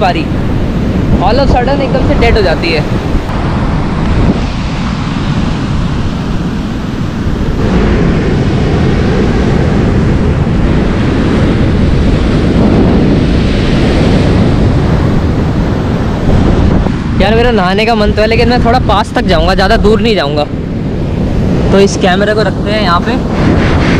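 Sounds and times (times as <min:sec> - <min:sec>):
surf breaking on a beach: 0:00.0 - 0:23.9
wind rumbling on microphone: 0:00.0 - 0:23.9.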